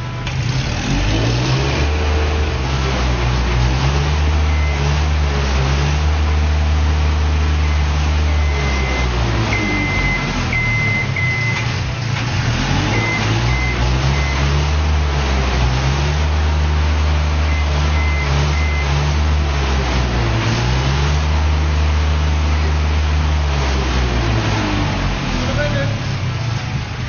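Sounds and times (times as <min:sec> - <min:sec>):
heavy machinery droning: 0:00.0 - 0:27.0
short high beeps: 0:07.6 - 0:11.6.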